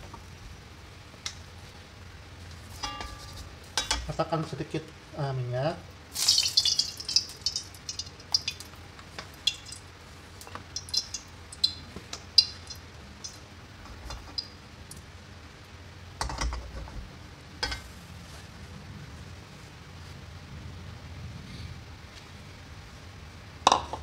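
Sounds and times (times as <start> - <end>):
wok scraping and clunking: 2.6 - 4.2, 13.8 - 14.4, 17.6 - 18.0
oil crackling and popping: 6.1 - 15.1.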